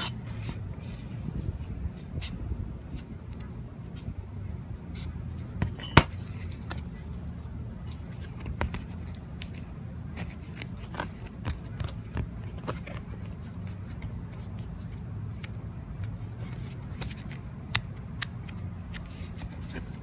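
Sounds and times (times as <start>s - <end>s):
low background rumble: 0.0s - 20.0s.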